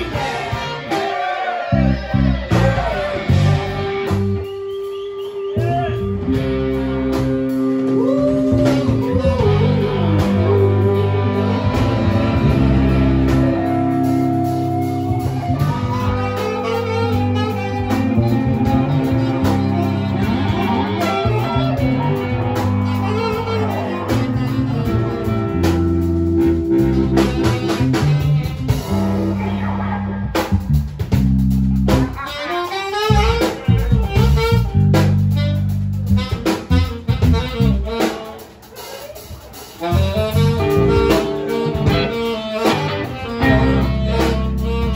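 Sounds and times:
saxophone: 0:00.0 - 0:30.8, 0:31.7 - 0:44.9
bass guitar: 0:00.0 - 0:44.9
drums: 0:00.0 - 0:44.9
electric guitar: 0:01.6 - 0:44.9
trombone: 0:08.6 - 0:30.7, 0:31.7 - 0:44.9.

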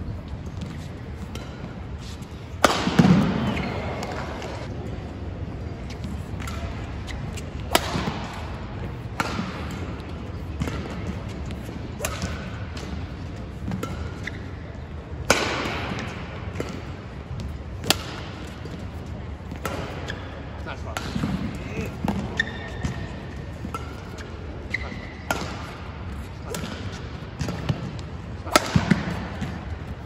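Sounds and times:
racket striking shuttlecock: 0:00.7 - 0:01.9, 0:02.5 - 0:04.7, 0:06.3 - 0:14.6, 0:15.2 - 0:17.0, 0:17.8 - 0:18.8, 0:19.5 - 0:20.2, 0:21.0 - 0:29.8.

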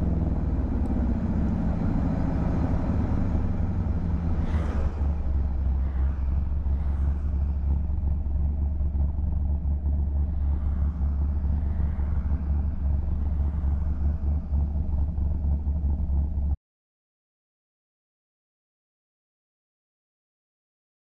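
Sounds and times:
car engine and road noise drone: 0:00.0 - 0:16.6.

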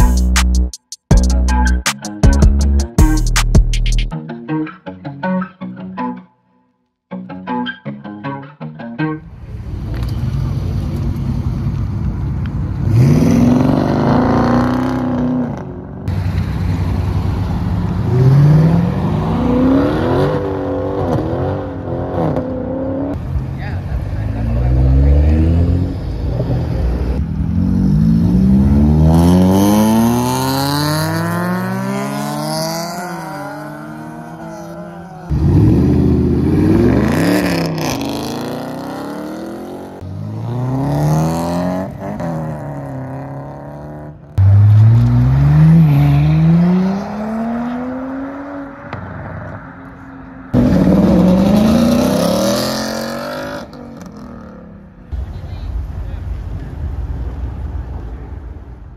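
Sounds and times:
cars accelerating hard: 0:12.7 - 0:55.0.

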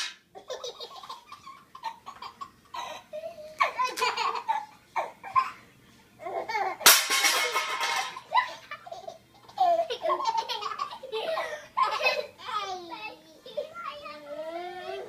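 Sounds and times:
baby giggling: 0:00.4 - 0:05.6, 0:08.2 - 0:12.8.

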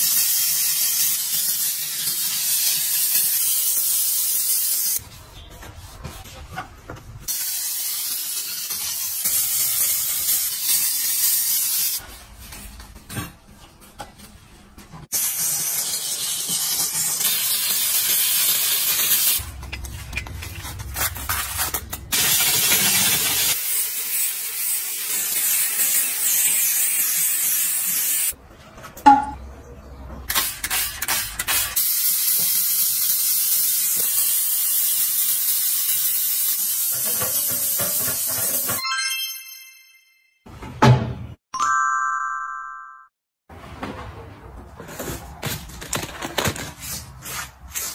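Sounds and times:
steam cleaner hissing: 0:00.0 - 0:05.0, 0:07.3 - 0:12.0, 0:15.2 - 0:19.4, 0:22.2 - 0:28.4, 0:30.4 - 0:38.7.

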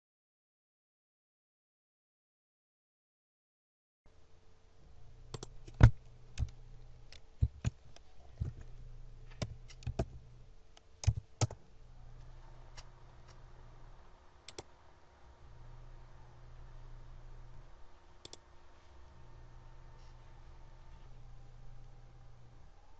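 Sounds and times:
faint low hum: 0:04.1 - 0:22.9
keyboard typing clicks: 0:05.3 - 0:10.2, 0:10.8 - 0:11.6, 0:14.4 - 0:14.7, 0:18.2 - 0:18.5.

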